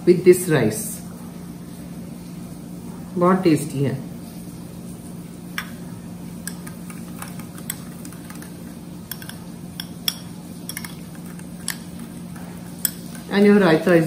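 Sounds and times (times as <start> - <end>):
steady low hum: 0.0 - 14.0
metal whisk clinking on glass: 6.4 - 13.4
whisk stirring yogurt: 6.4 - 13.6.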